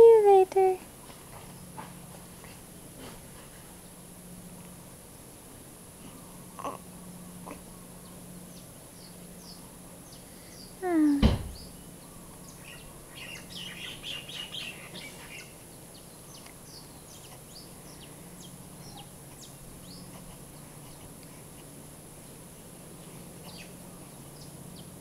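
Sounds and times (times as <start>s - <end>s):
birds chirping: 5.2s - 21.2s, 22.6s - 25.0s
loud pitched sound with knock: 11.2s - 11.6s.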